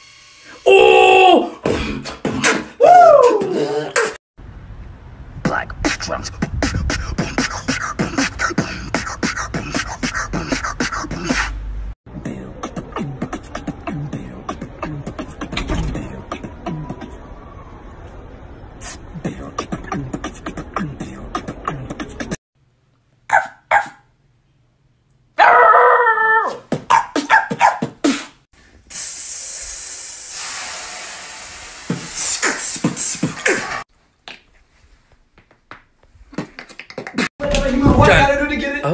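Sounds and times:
person beatboxing: 1.6 - 4.2, 5.4 - 17.2, 18.8 - 22.4, 26.7 - 28.4, 31.9 - 33.8, 36.3 - 37.3
howl-like vocal call: 25.4 - 26.6.

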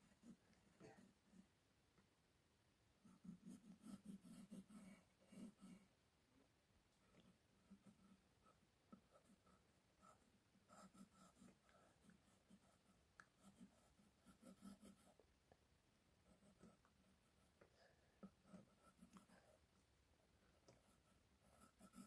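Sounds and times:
pencil scratching on paper: 0.0 - 1.5, 3.0 - 5.9, 7.2 - 15.2, 16.2 - 17.6, 18.2 - 19.6, 20.6 - 22.0.

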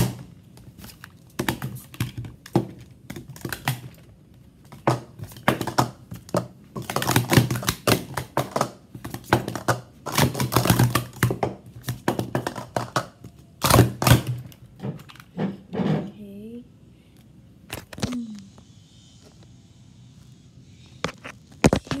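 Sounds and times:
plastic cups clattering: 0.0 - 16.1.

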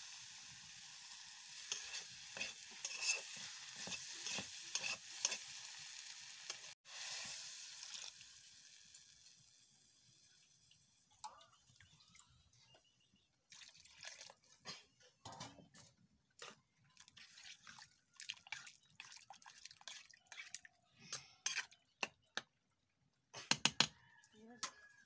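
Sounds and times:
water pouring and splashing into wok: 0.0 - 12.2, 13.5 - 14.8, 16.4 - 20.8
curry simmering: 16.3 - 22.0.

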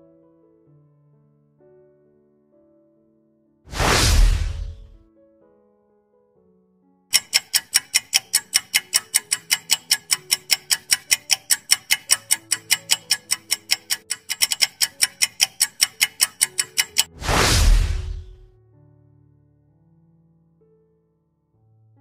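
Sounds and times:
fast clock ticking: 4.1 - 5.0, 7.1 - 18.4.

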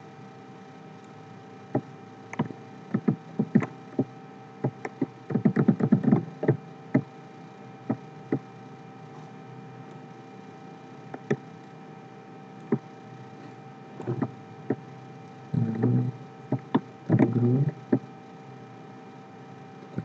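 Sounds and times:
faint steady hum: 0.0 - 20.0
keyboard and mouse clicking: 4.6 - 6.6.

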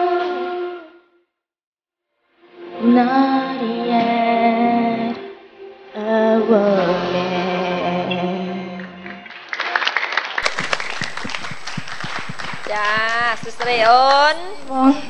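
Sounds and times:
woman singing into a microphone: 2.8 - 5.3, 6.0 - 9.0
clapping and applause: 9.0 - 14.9.

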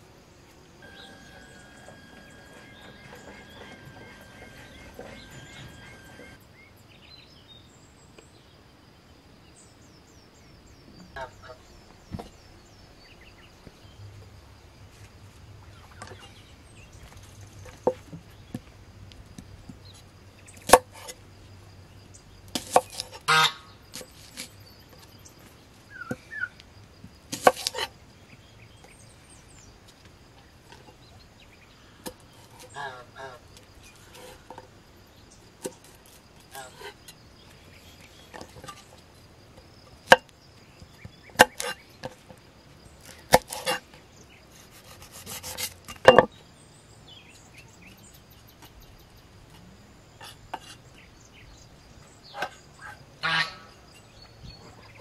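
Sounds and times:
small birds chirping: 0.4 - 8.7, 9.4 - 55.0
fowl calling: 0.8 - 6.4, 23.3 - 23.7, 52.4 - 53.8.

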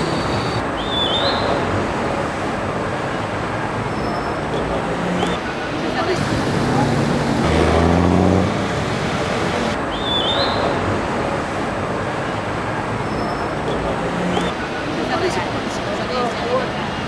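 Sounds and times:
vehicle engine hum: 0.0 - 10.0
city street traffic: 0.0 - 17.0.

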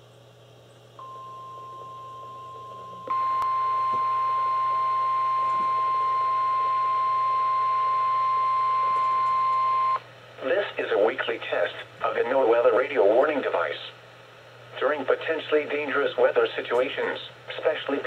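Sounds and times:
faint radio hiss: 0.0 - 7.2, 10.0 - 18.0.

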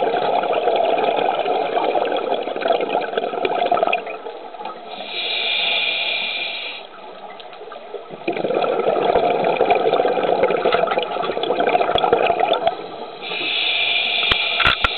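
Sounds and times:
exhaled bubbles rushing: 0.0 - 4.3, 8.0 - 12.8
regulator inhalation hiss: 4.9 - 6.9, 13.0 - 14.9.

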